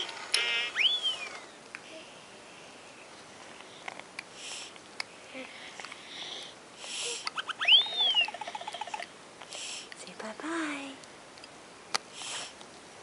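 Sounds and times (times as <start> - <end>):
toy electronic beeps and chirps: 0.4 - 1.4, 7.4 - 9.0.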